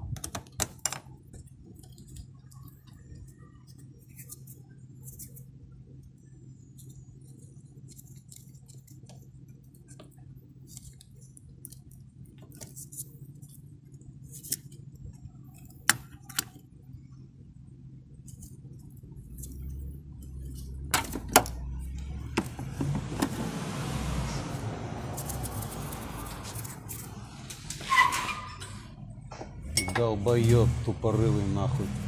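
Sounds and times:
low vehicle rumble: 16.8 - 32.0
wrench clinking on metal: 29.7 - 30.1.

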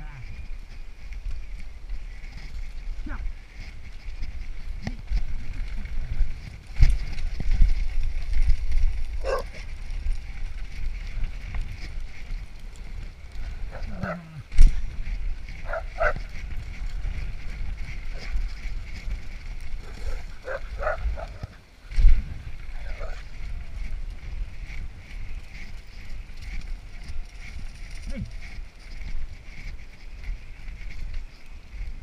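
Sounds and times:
wind rumble: 0.0 - 32.0
dogs barking: 9.2 - 9.7, 13.7 - 14.3, 15.6 - 16.2, 19.8 - 21.5.

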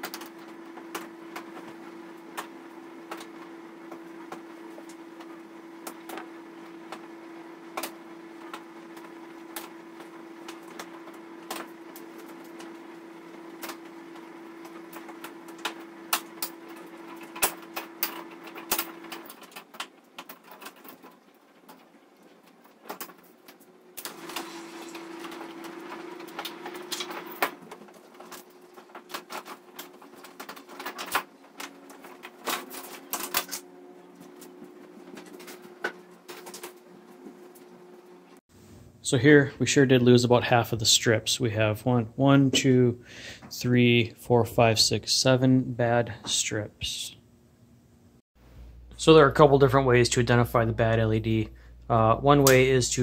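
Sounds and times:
plastic sheet flexing and rattling: 7.8 - 37.7
steady hum: 24.0 - 53.0.

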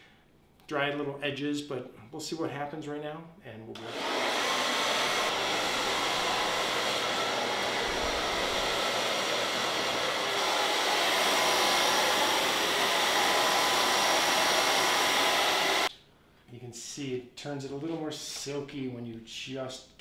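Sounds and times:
hair dryer blowing: 3.8 - 15.9.

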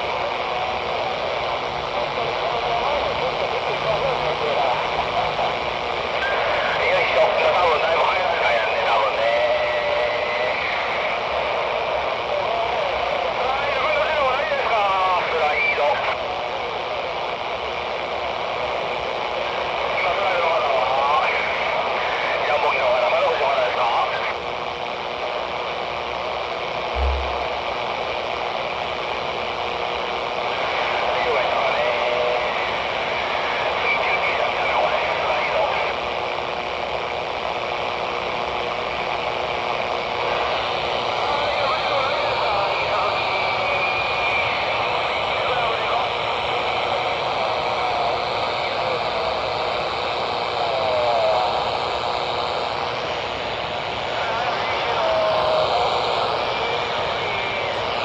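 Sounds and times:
radio static hiss: 0.0 - 58.0
low thump: 27.0 - 27.6
faint wavering voice: 27.0 - 27.8.

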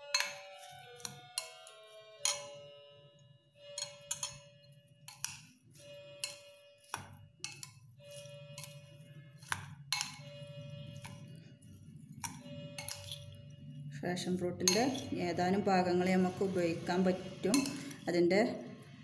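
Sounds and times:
spoon clinking against ceramic bowl: 0.0 - 2.7, 3.7 - 5.6, 6.2 - 13.4, 14.6 - 15.2, 17.4 - 18.0.

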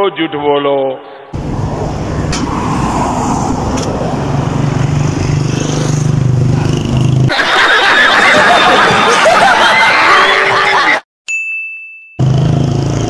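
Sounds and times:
street noise: 1.2 - 11.0, 12.2 - 13.0
vehicle engine running: 1.4 - 7.3, 12.2 - 13.0
people laughing: 7.3 - 11.0.

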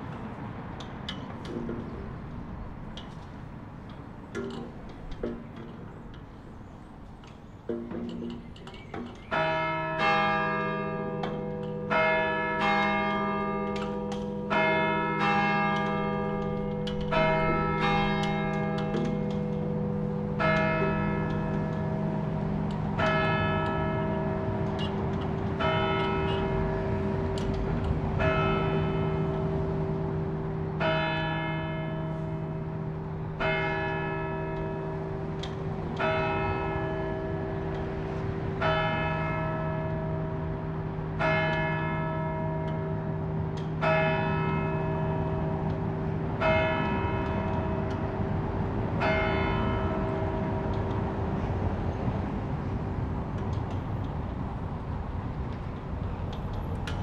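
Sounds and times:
church tower bell striking: 7.7 - 51.8.

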